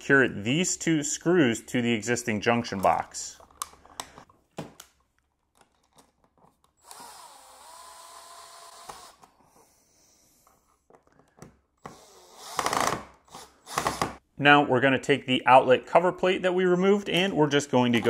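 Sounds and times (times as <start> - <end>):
power drill whining: 6.8 - 9.3, 11.8 - 14.2.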